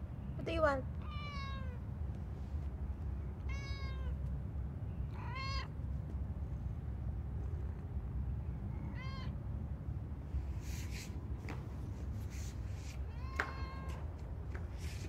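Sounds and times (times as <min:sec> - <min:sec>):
cat meowing: 0:01.0 - 0:01.8, 0:03.4 - 0:04.2, 0:05.1 - 0:05.8, 0:08.7 - 0:09.4, 0:13.0 - 0:14.1.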